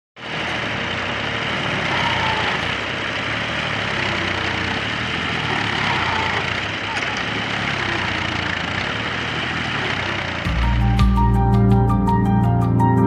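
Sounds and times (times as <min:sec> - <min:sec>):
diesel tractor engine running: 0:00.2 - 0:13.0.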